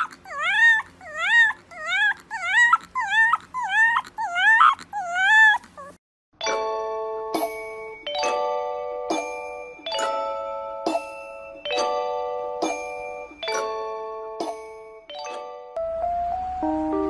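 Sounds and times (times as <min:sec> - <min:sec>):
puppy high-pitched cries: 0:00.0 - 0:06.0
chiming ding-dong melody: 0:06.4 - 0:17.0.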